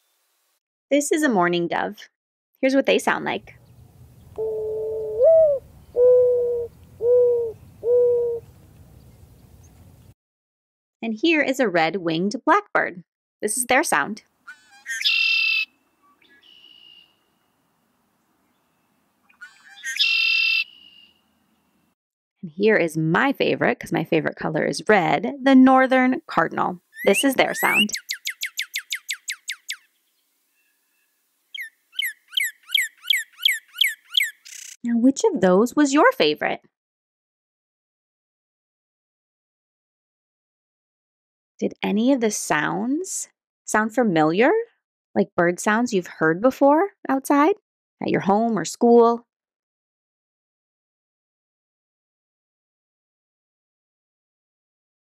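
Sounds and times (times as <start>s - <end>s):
bird whistling song: 3.5s - 9.7s, 14.7s - 17.2s, 19.4s - 21.2s, 26.9s - 29.9s, 31.5s - 34.8s
dove cooing: 4.2s - 8.8s.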